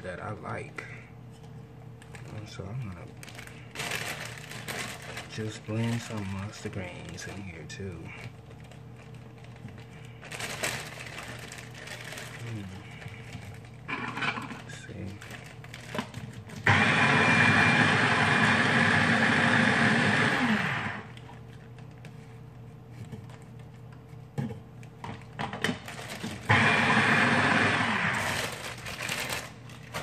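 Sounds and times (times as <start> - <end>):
rustling leaves and plastic bag: 2.0 - 13.7, 14.4 - 16.4, 28.2 - 30.0
electric food chopper motor: 13.9 - 14.6, 16.6 - 21.2, 26.0 - 29.5.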